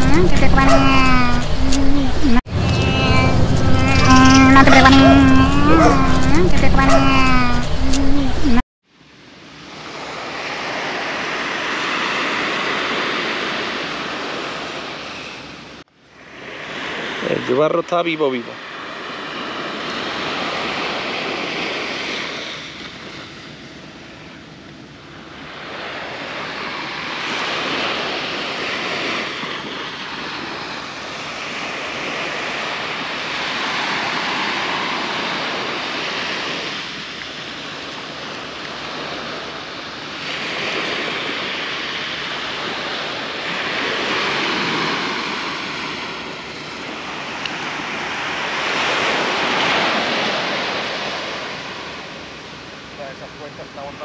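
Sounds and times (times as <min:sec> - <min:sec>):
surf breaking on beach: 0:09.7 - 0:15.3, 0:18.6 - 0:23.8, 0:25.4 - 0:54.0.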